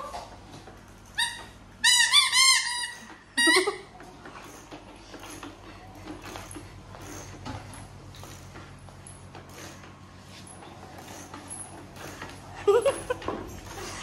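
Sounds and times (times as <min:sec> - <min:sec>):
squeaky toy horn: 0:01.2 - 0:03.8.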